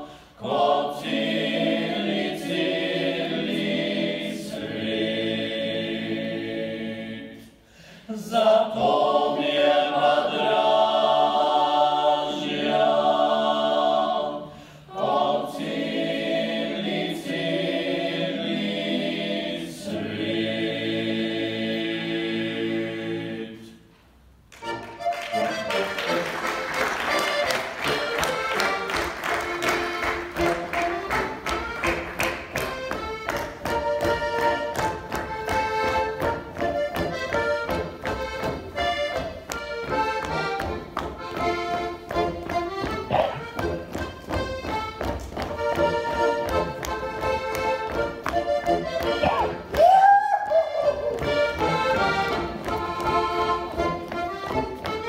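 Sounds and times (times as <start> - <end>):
choir singing unaccompanied: 0.0 - 23.8, 50.5 - 55.0
instrumental music: 24.5 - 55.0.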